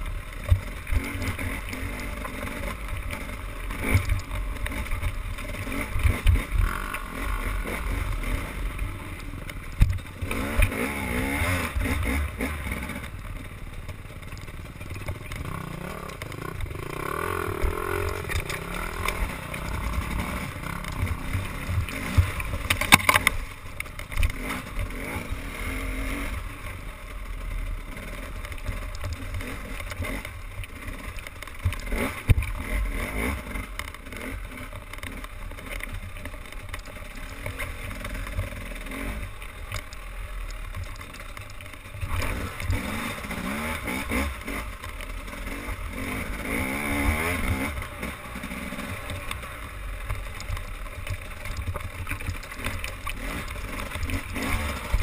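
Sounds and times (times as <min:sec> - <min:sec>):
motorboat engine running: 0:00.0 - 0:25.3.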